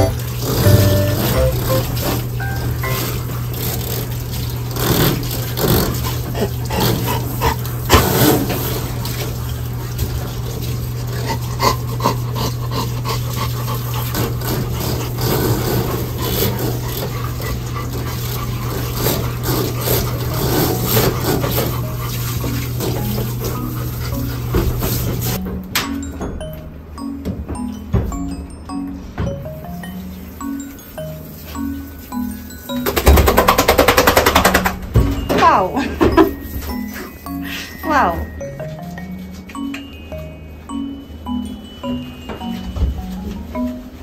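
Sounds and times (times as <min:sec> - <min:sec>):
water splashing: 0:00.0 - 0:11.1
dog sounds: 0:11.0 - 0:25.4.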